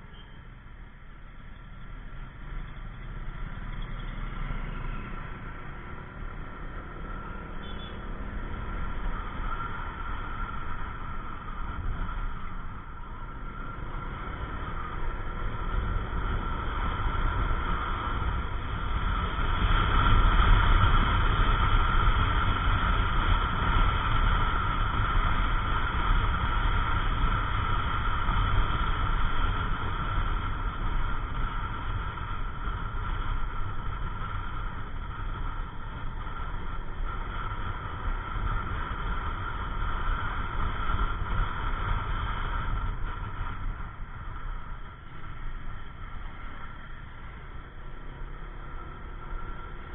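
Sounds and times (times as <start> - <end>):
road noise: 0.0 - 49.9
wind rushing over microphone: 2.0 - 49.9.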